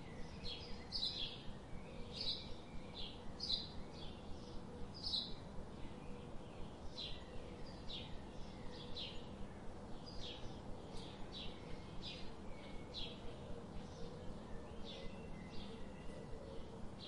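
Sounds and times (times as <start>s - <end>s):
bird chirping: 0.0s - 9.3s, 10.0s - 17.0s
low rumble and hiss: 0.0s - 17.0s.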